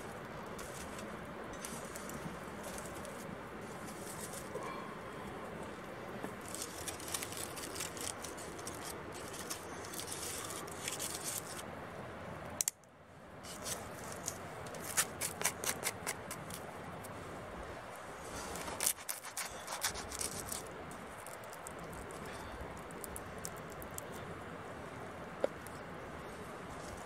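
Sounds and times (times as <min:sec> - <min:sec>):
steady background hiss: 0:00.0 - 0:27.0
aluminium foil crinkling: 0:06.4 - 0:11.6, 0:13.5 - 0:16.6, 0:18.3 - 0:24.2
fingers rubbing potato skin: 0:13.5 - 0:16.6, 0:18.4 - 0:22.2.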